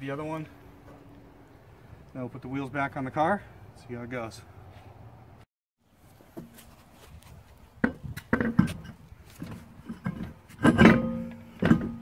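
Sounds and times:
steel wheel clanking on hub: 7.8 - 12.0.

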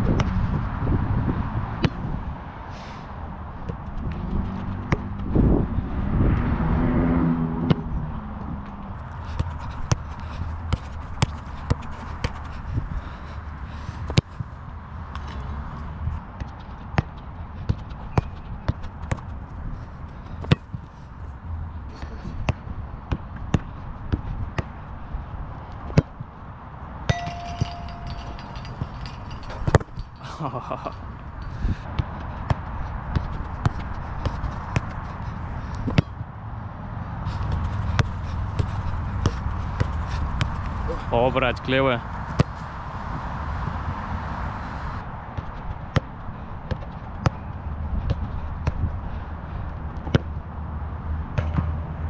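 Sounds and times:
footsteps: 27.1 - 36.0
football kick thuds: 46.7 - 47.4, 50.0 - 50.3.

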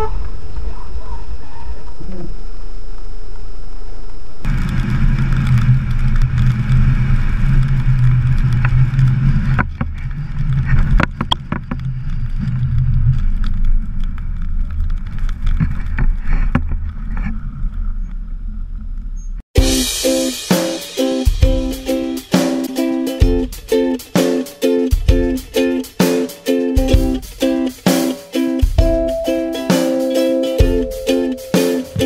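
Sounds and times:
car engine and road drone: 0.0 - 15.6.

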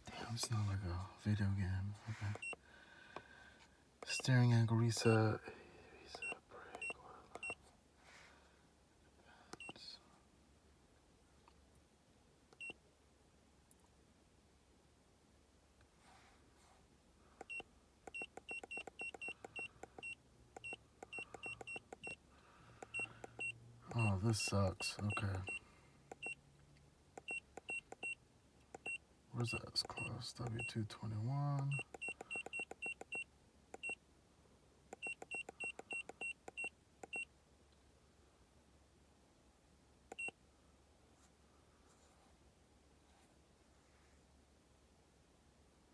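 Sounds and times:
short high beeps with clicks: 6.1 - 7.6, 17.4 - 22.2, 31.6 - 34.0, 40.1 - 40.4.

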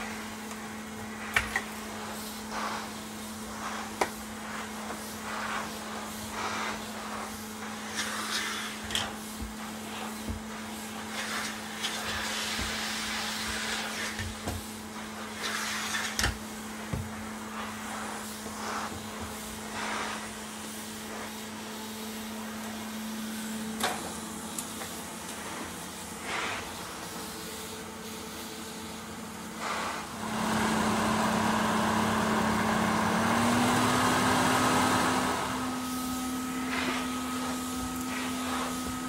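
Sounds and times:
vacuum cleaner motor hum: 0.0 - 39.0
vacuum nozzle swishing over carpet: 0.0 - 39.0.

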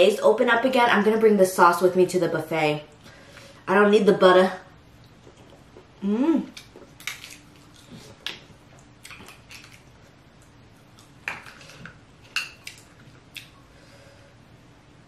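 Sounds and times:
wet clicks and snaps of eating: 6.5 - 11.1, 12.6 - 13.6.

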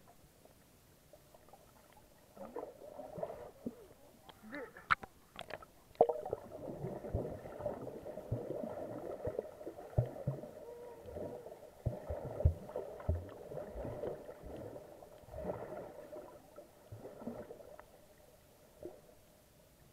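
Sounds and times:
water sloshing and gurgling: 0.0 - 19.2.

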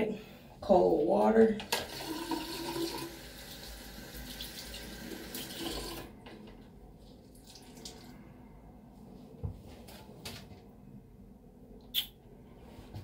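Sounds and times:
water running from sink tap: 1.7 - 6.1.

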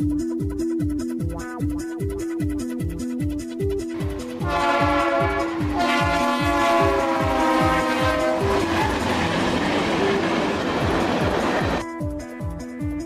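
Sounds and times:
train wheels clattering: 4.2 - 11.8
locomotive air horn: 4.3 - 9.3.

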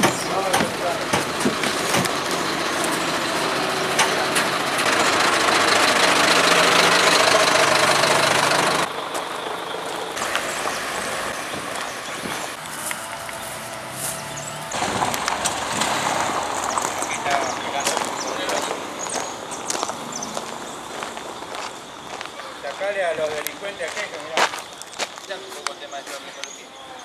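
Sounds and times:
vehicle engine running: 0.0 - 22.7
outdoor traffic noise: 0.0 - 27.0.

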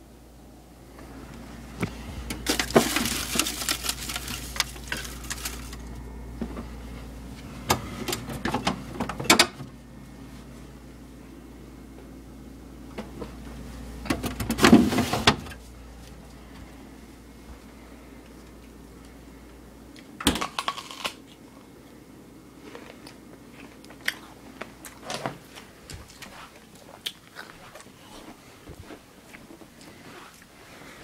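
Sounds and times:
low steady hum: 0.0 - 31.0
plastic bag rustling: 2.1 - 6.0.

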